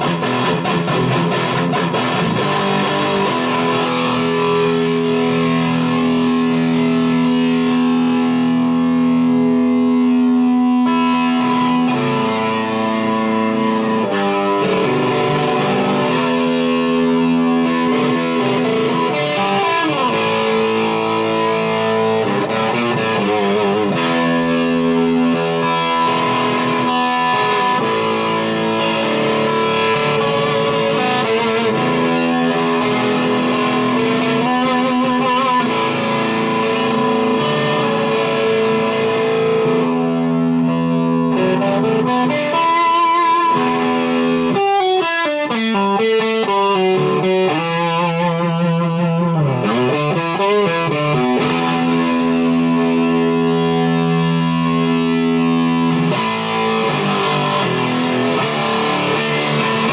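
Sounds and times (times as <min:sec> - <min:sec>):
distorted electric guitar: 0:00.0 - 0:59.9.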